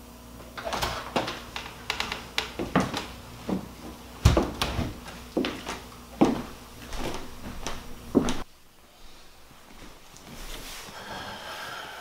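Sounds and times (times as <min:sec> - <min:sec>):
door thumping shut: 0:04.2 - 0:05.0.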